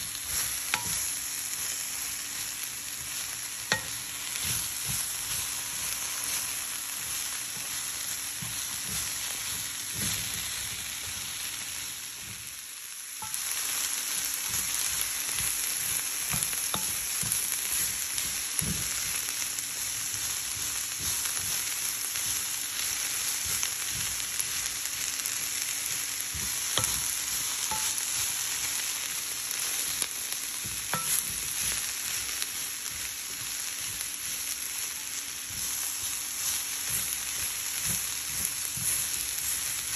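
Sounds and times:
cabbage sizzling in pan: 0.0s - 39.9s
wooden spatula scraping pan: 3.0s - 10.8s, 25.8s - 28.8s, 29.6s - 39.9s.

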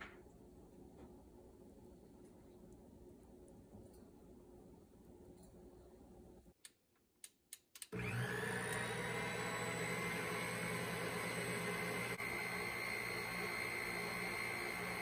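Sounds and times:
mixer clicks: 7.6s - 15.0s
stand mixer motor humming: 8.0s - 15.0s.

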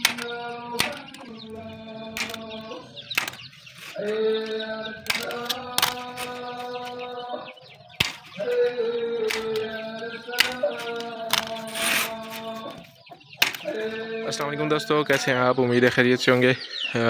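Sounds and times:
staple gun snapping: 0.0s - 1.2s, 2.2s - 3.5s, 5.0s - 6.2s, 8.0s - 8.4s, 9.2s - 9.7s, 13.4s - 13.7s.

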